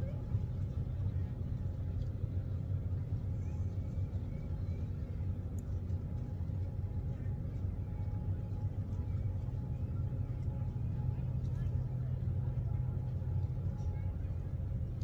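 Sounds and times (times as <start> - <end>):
low rumble of distant traffic: 0.0 - 15.0.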